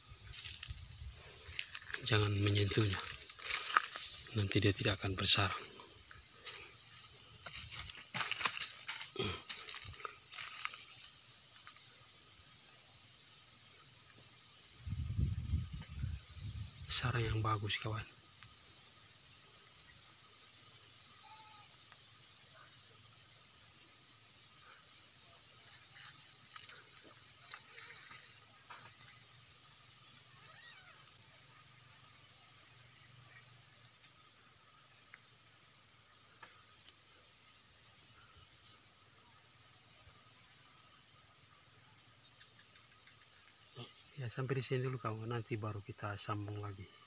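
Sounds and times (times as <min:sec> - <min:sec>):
dry grass and twigs crunching: 0:00.0 - 0:04.5, 0:06.0 - 0:11.8, 0:25.7 - 0:29.3
high insect chorus: 0:00.0 - 0:47.0.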